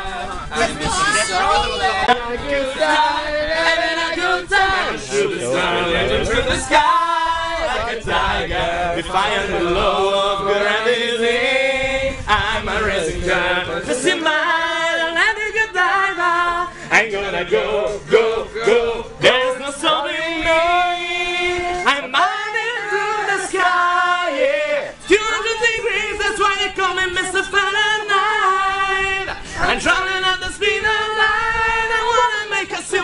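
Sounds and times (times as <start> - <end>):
men singing together: 0.0 - 33.0
man singing into microphone: 8.5 - 33.0.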